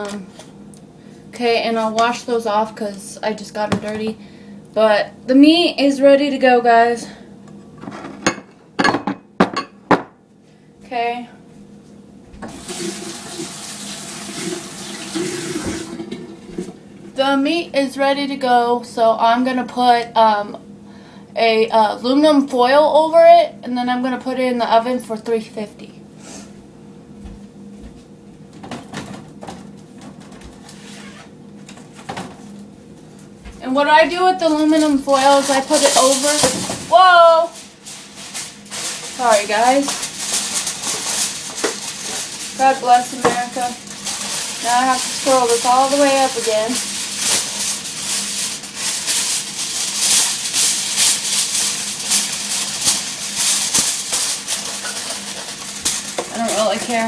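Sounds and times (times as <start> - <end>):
aluminum foil crinkling: 34.1 - 57.0.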